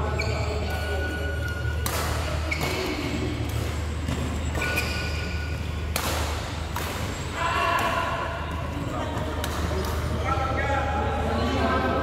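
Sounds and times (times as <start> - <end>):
sports hall hum: 0.0 - 12.0
racket hitting shuttlecock: 1.8 - 8.4.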